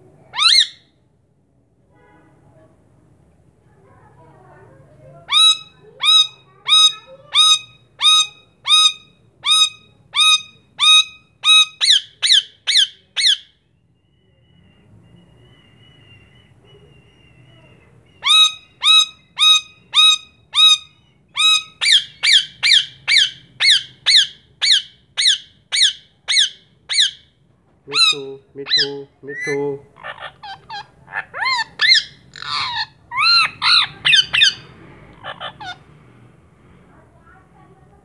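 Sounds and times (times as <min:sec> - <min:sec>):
parakeet screeching: 0:00.3 - 0:00.8, 0:05.3 - 0:13.5, 0:18.2 - 0:27.2, 0:27.9 - 0:35.9.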